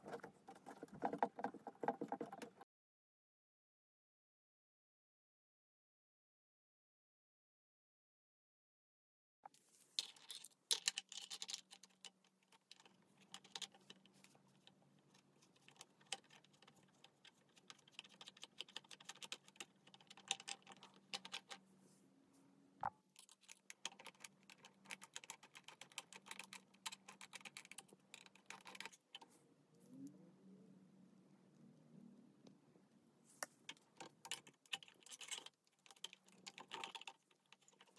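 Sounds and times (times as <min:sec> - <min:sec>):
plastic parts clicking and tapping: 0:10.0 - 0:21.6, 0:23.2 - 0:29.3, 0:33.4 - 0:37.9.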